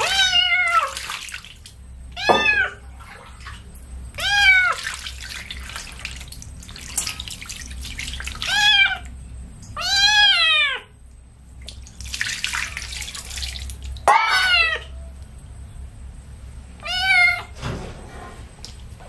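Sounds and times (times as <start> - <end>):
kitten meowing loudly: 0.0 - 1.0, 2.2 - 2.8, 9.8 - 10.9, 14.1 - 14.9, 16.8 - 17.5
water splashing poured from bowl: 0.7 - 1.7, 4.8 - 8.5, 11.6 - 14.0.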